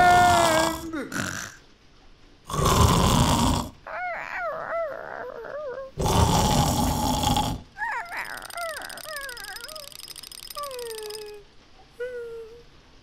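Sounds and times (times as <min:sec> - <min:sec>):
cartoon snoring: 0:00.0 - 0:01.6, 0:02.5 - 0:10.0.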